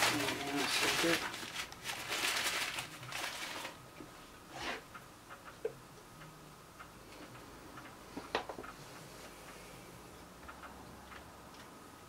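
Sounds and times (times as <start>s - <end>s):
paper rustling: 0.0s - 3.8s.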